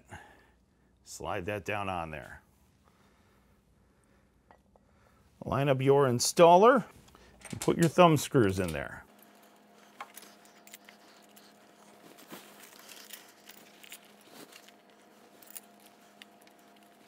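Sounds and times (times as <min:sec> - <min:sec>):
faint steady hum: 0:00.0 - 0:17.0
light clicks and handling noises: 0:07.0 - 0:17.0.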